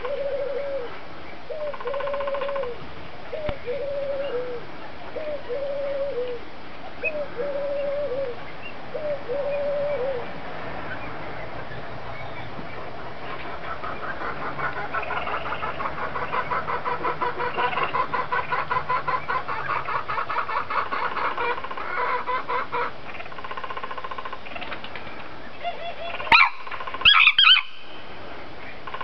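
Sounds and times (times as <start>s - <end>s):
rooster clucking: 13.2s - 24.8s
rooster crowing: 26.3s - 27.8s.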